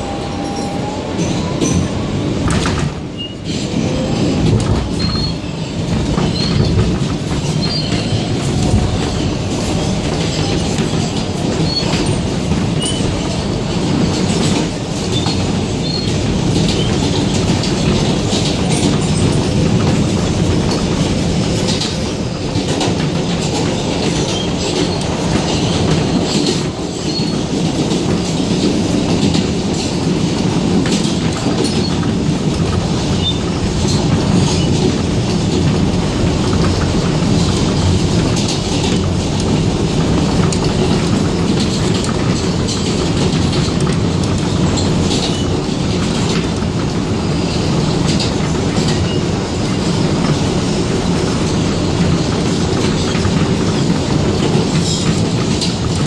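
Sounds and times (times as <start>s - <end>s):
subway wheels rumbling on rail: 0.0s - 56.0s.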